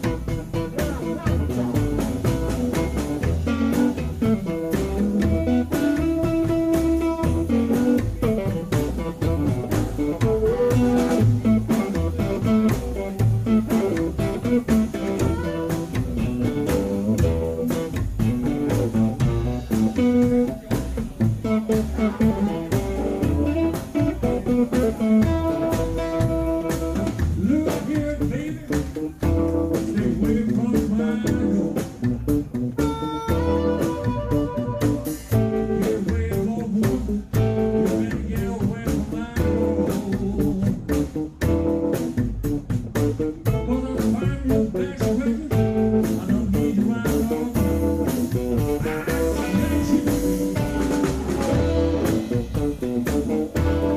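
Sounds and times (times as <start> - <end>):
person singing: 0.0 - 32.1, 32.8 - 41.2, 43.4 - 53.9
acoustic guitar: 0.0 - 53.9
double bass: 0.0 - 53.9
drums: 0.0 - 53.9
harmonica: 32.8 - 35.5.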